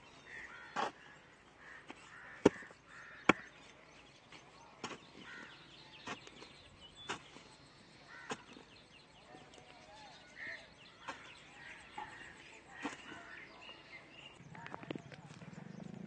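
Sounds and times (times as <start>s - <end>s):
faint birds chirping: 0.0s - 16.0s
hoe striking and scraping sand: 0.3s - 8.8s, 10.9s - 13.4s.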